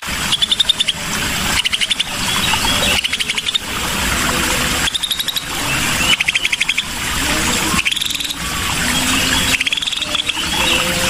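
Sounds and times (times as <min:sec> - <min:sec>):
bird trilling: 0:01.6 - 0:03.6, 0:07.7 - 0:11.0.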